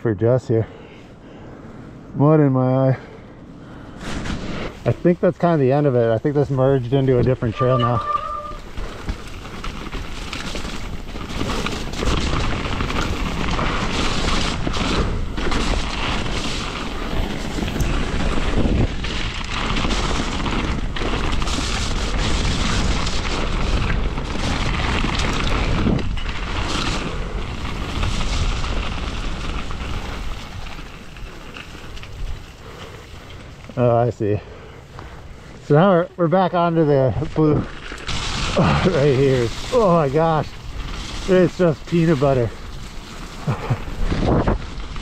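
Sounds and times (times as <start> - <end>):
bike rattling: 0.2 - 45.0
tyres crunching on stones: 4.0 - 45.0
wind buffeting microphone: 4.4 - 32.5, 37.3 - 45.0.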